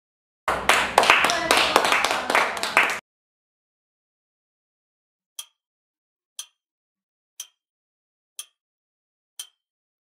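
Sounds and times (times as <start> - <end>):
people clapping: 0.5 - 3.0
steady ticking: 5.4 - 5.6, 6.4 - 6.6, 7.4 - 7.6, 8.4 - 8.6, 9.4 - 9.6.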